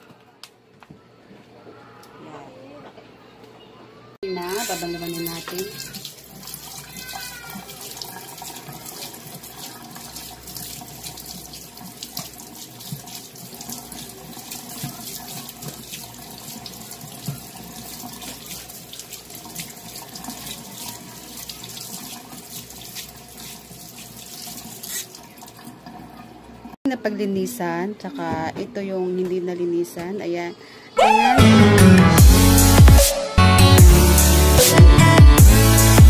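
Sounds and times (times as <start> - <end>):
faucet running into metal sink: 4.3 - 26.8.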